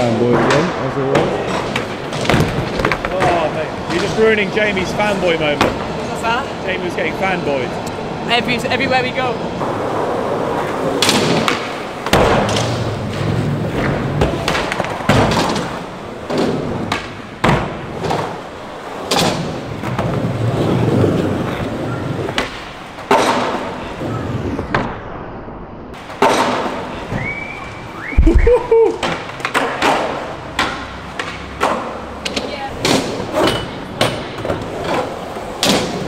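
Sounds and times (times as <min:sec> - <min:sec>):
skateboard wheels rolling: 0:00.0 - 0:25.3, 0:25.9 - 0:36.0
skateboard clacks and thuds: 0:00.2 - 0:04.2, 0:10.9 - 0:23.8, 0:26.1 - 0:27.3, 0:28.2 - 0:36.0.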